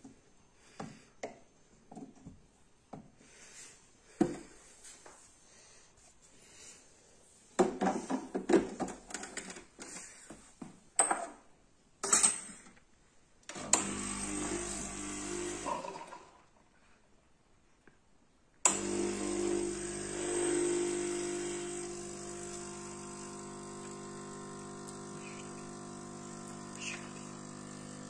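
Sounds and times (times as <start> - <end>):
machine hum: 18.7 - 28.0.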